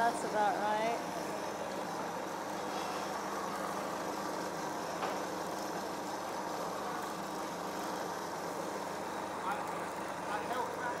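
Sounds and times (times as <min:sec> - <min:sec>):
electric blender running: 0:00.0 - 0:11.0.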